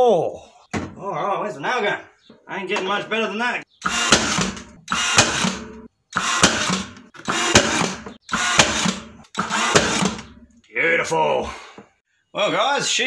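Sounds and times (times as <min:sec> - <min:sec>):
nail gun firing: 0:03.8 - 0:10.3.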